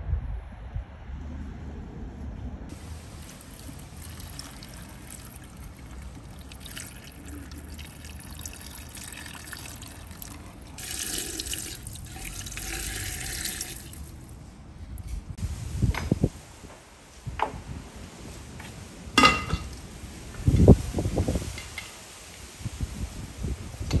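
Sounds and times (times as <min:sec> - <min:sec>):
water pouring into a pot: 0:02.7 - 0:14.2.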